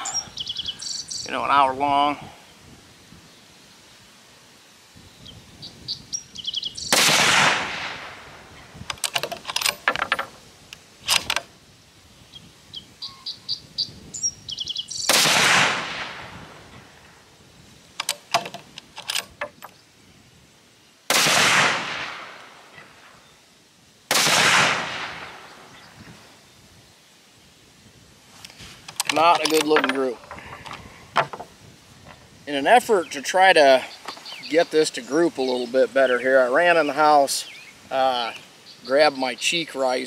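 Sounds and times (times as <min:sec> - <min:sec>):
birds chirping: 0:00.0 - 0:02.6, 0:03.2 - 0:11.4, 0:12.2 - 0:15.4, 0:25.1 - 0:27.6, 0:28.4 - 0:40.0
rifle shots: 0:06.9 - 0:08.3, 0:15.1 - 0:16.3, 0:21.1 - 0:22.4, 0:24.1 - 0:25.5
rifle bolt clicks: 0:18.0 - 0:19.4.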